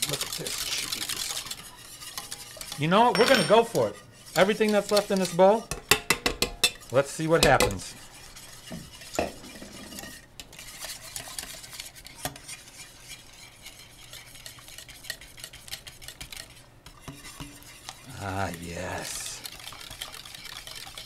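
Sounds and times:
wire whisk scraping a saucepan: 0.0s - 21.0s
whisk knocking against pan: 3.5s - 9.5s, 10.7s - 18.0s.

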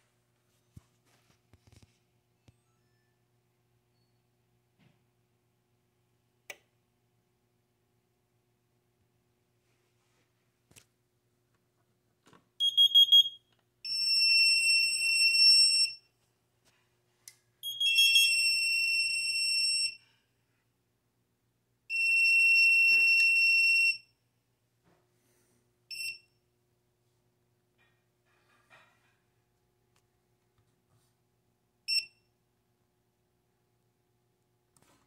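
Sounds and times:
high beeps: 12.6s - 13.4s
electronic alarm tones: 12.6s - 16.0s.

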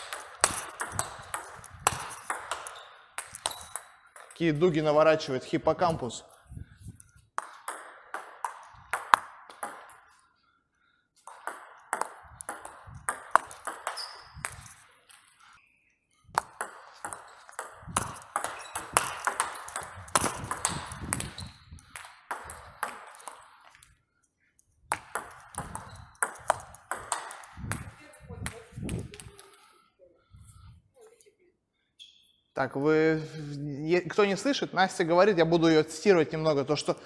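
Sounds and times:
ball bouncing on table: 0.0s - 4.4s, 7.4s - 10.0s, 11.3s - 14.7s, 16.3s - 23.4s, 24.9s - 29.3s
ping pong ball hitting rackets: 0.0s - 4.4s, 7.4s - 10.2s, 11.2s - 15.4s, 16.3s - 23.9s, 24.9s - 29.3s.

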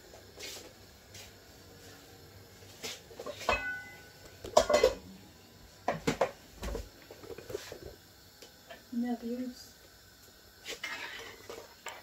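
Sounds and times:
pots and dishes clattering: 3.2s - 5.1s, 5.8s - 7.8s, 10.7s - 12.0s
short metallic ring: 3.5s - 4.1s.

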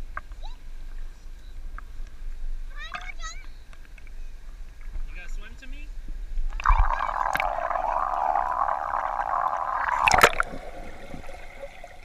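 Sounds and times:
water gurgling and sloshing: 6.4s - 12.0s
loud splash: 6.6s - 12.0s.

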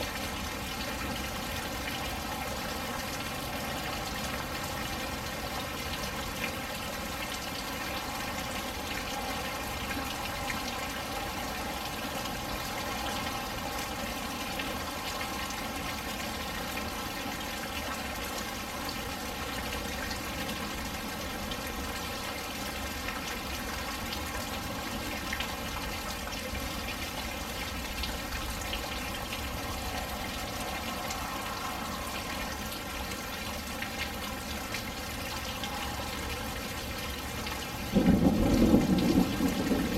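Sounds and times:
steady rain falling: 0.0s - 39.9s
sharp raindrop hits: 37.7s - 39.9s.

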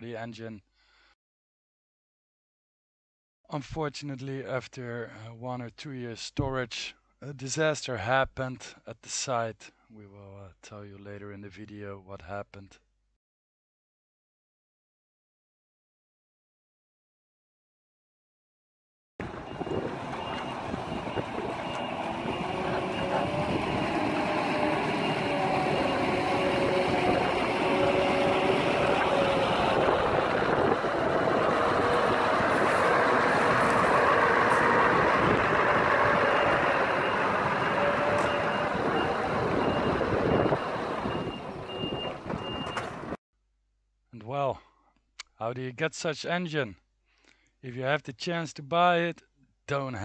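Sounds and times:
heavy truck diesel engine: 19.2s - 43.2s
truck tyres rolling: 19.2s - 43.2s
reversing alarm beeping: 19.3s - 29.8s, 35.5s - 43.0s.

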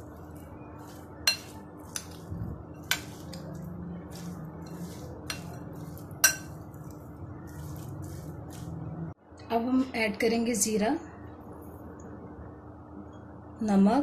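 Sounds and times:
spoon stirring food in bowl: 0.0s - 8.8s
spoon clinking against glass: 0.9s - 2.2s, 4.7s - 6.8s.

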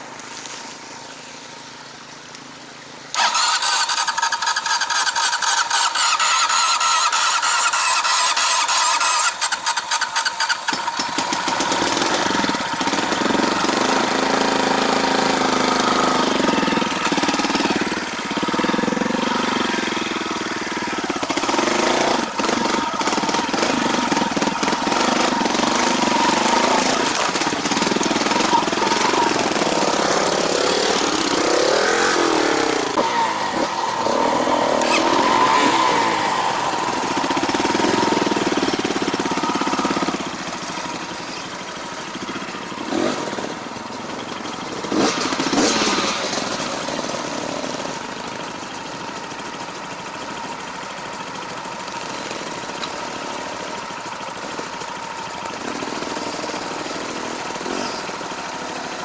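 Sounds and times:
motorcycle engines revving: 0.0s - 59.0s.

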